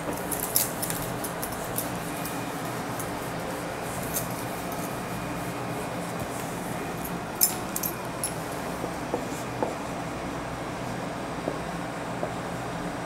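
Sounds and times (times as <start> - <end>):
light clicks and clinks: 7.0 - 8.4.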